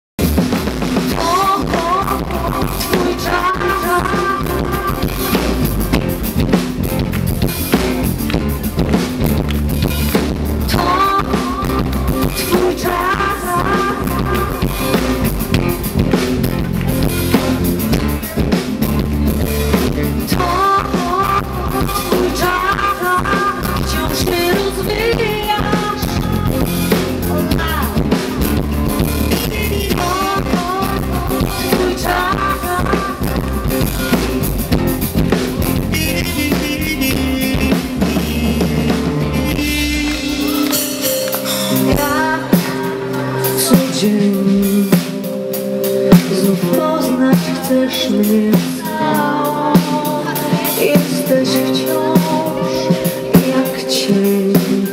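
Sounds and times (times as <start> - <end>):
bass guitar: 0.2 - 54.9
drum kit: 0.2 - 54.9
acoustic guitar: 1.2 - 54.9
wordless vocal melody: 10.5 - 16.4, 20.0 - 54.9.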